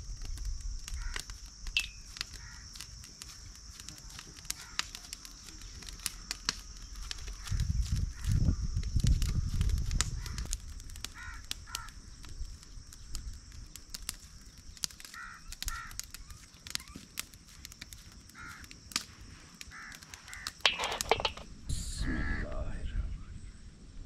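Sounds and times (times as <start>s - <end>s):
steady high hiss: 0.0s - 24.0s
crows cawing: 1.0s - 1.3s, 2.2s - 2.7s, 4.4s - 5.0s, 10.2s - 12.0s, 15.0s - 16.2s, 18.2s - 18.8s, 19.6s - 21.4s, 22.1s - 22.5s.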